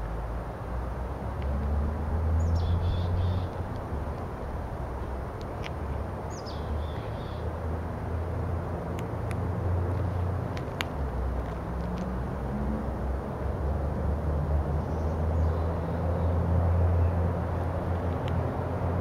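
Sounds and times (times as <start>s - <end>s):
car rolling on paved road: 0.0s - 15.6s
bird chirp: 2.4s - 3.5s, 6.3s - 7.5s.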